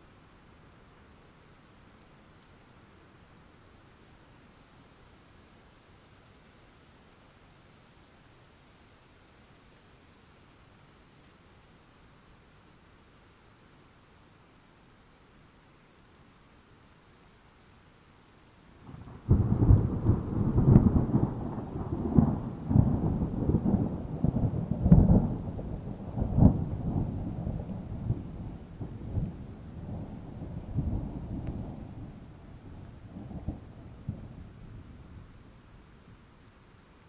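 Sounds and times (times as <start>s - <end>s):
faint steady rain: 0.0s - 37.0s
thunder crack and rumble: 18.9s - 35.4s.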